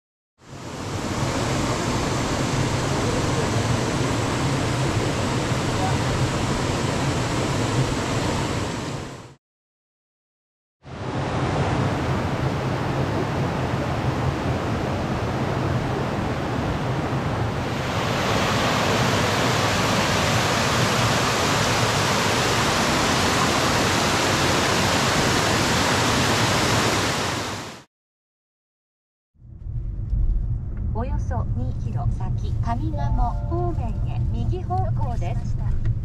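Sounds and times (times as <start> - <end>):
rushing river water: 10.9 - 27.9
small waterfall cascading: 17.8 - 27.8.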